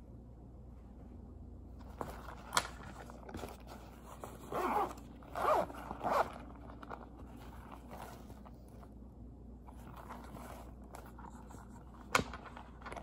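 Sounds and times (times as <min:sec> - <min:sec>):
zipper pulled open: 0:03.4 - 0:08.5, 0:09.7 - 0:11.8.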